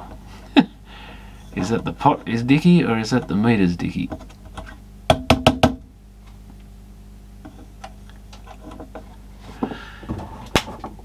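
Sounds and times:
knocks on metal panel: 5.1s - 5.9s.

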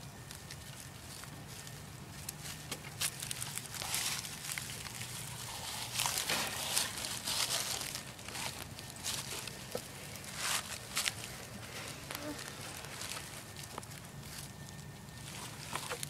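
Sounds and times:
rustling dead leaves: 0.0s - 16.0s.

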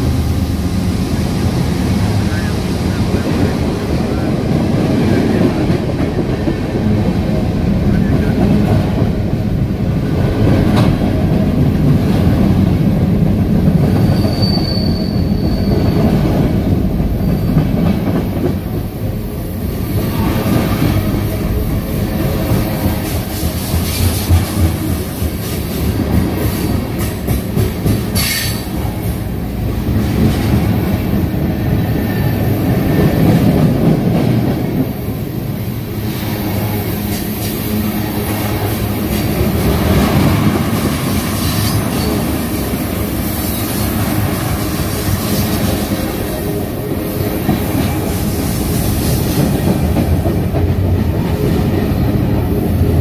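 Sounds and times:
freight train rumbling past: 0.0s - 53.0s
high wheel squeal: 14.0s - 16.2s.

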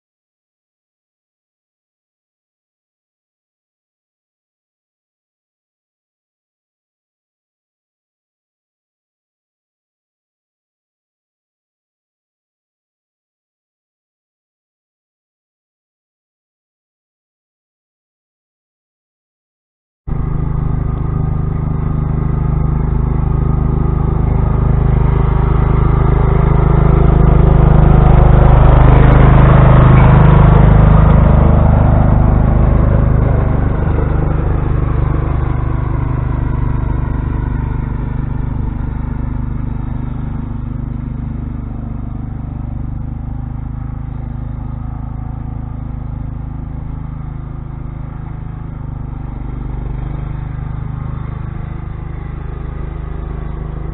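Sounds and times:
lawn tractor engine running: 20.1s - 53.9s.

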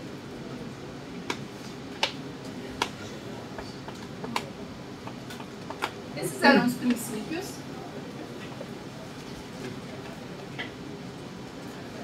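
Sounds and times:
room noise: 0.0s - 12.0s.

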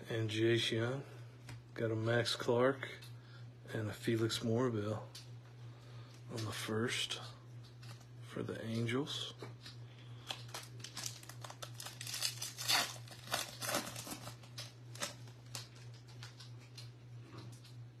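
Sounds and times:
steady low hum: 0.0s - 18.0s
wrapper tearing and crinkling: 10.2s - 16.8s.

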